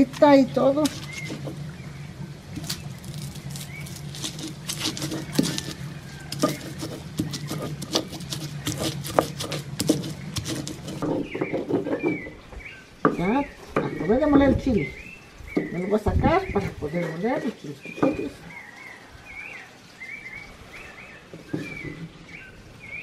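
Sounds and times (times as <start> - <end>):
dried chiles crackling and crunching: 0.0 - 11.3.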